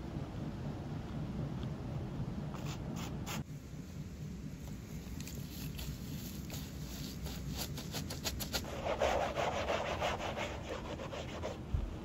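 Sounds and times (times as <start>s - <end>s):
cotton pad scrubbing sneaker: 5.2s - 11.6s.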